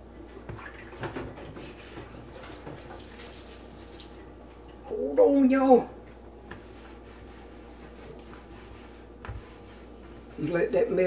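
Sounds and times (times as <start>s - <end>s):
faucet running into sink: 0.5s - 4.3s.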